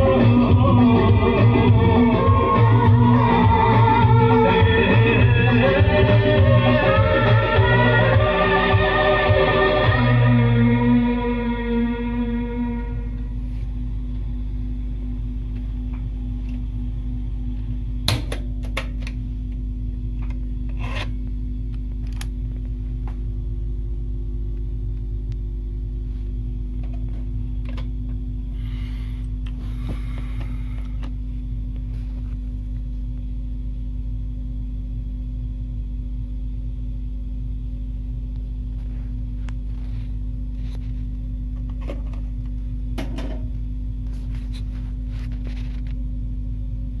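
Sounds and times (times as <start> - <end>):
low electrical hum: 0.0 - 47.0.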